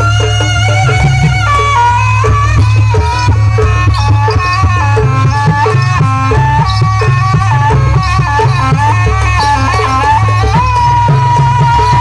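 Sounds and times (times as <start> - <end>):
traditional accompaniment music: 0.0 - 12.0.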